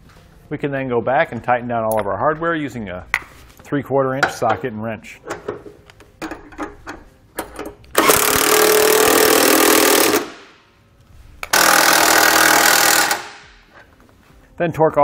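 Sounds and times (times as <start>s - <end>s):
impact wrench driving bolts: 5.3s - 10.5s, 11.4s - 13.6s.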